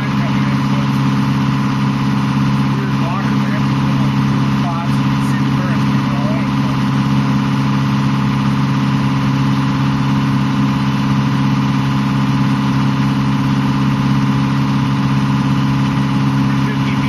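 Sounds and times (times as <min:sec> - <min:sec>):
boat engine droning: 0:00.0 - 0:17.0.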